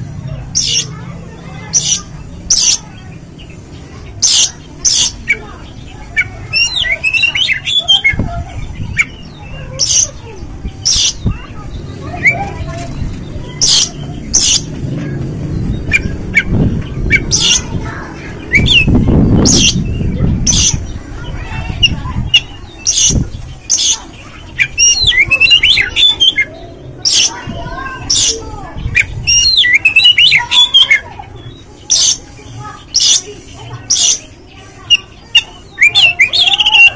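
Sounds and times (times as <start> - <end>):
bird calling harsh notes: 1.6 - 36.9
bird whistled phrases: 6.1 - 10.2, 18.5 - 20.9, 21.8 - 27.4, 28.1 - 31.1, 33.9 - 36.9
low rumble: 10.4 - 22.3.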